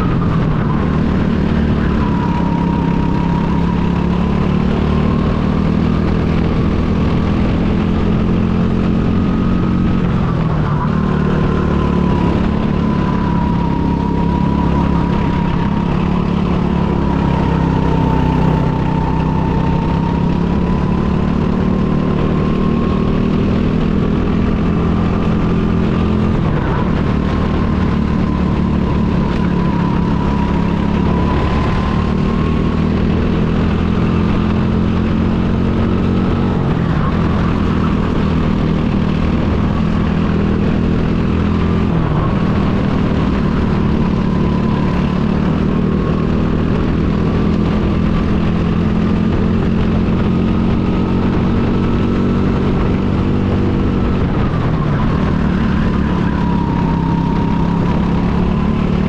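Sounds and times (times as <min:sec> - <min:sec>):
go-kart engine running: 0:00.0 - 0:59.0.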